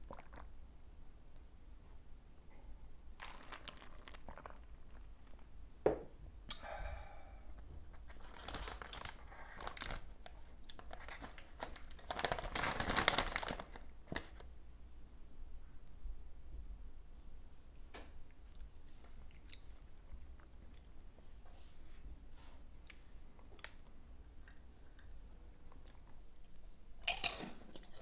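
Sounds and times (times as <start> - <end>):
plastic chip bag crinkling: 3.2 - 5.5, 8.0 - 14.5.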